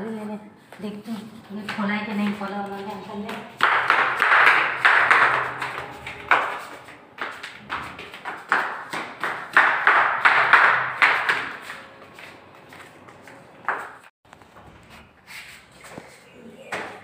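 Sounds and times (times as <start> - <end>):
footsteps on stone stairs: 1.0 - 14.6.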